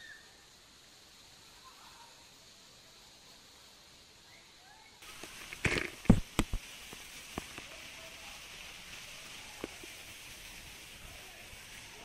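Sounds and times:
waterfall rushing and splashing: 5.0 - 12.0.

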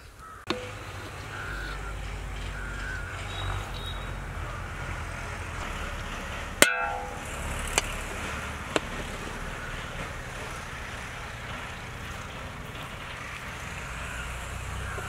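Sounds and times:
ladle striking metal pot: 6.6 - 7.8.

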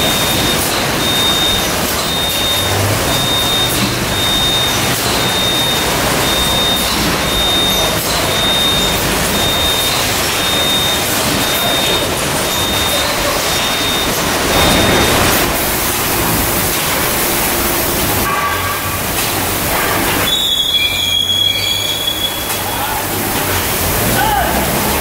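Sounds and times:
high electronic beep: 0.0 - 16.7
conveyor machinery running: 0.0 - 25.0.

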